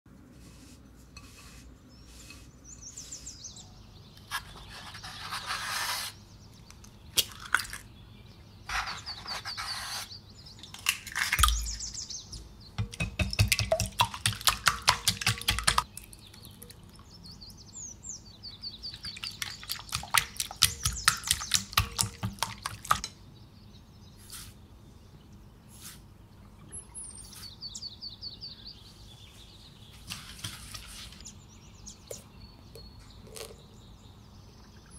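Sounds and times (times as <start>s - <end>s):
birds chirping: 1.2s - 34.9s
whisk clicking against bowl: 12.8s - 15.8s, 19.4s - 23.0s.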